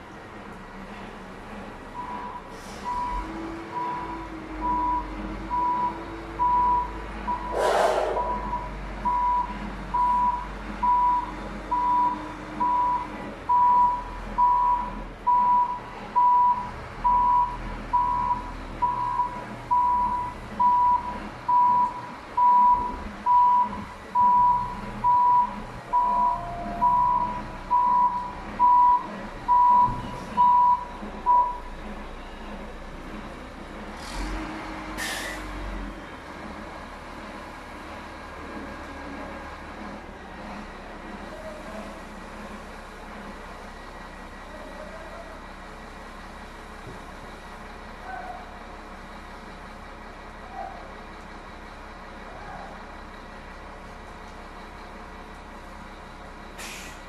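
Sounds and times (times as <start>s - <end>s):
low engine rumble: 0.0s - 57.0s
backup alarm beeping: 3.8s - 31.6s
air hiss burst: 7.5s - 8.3s.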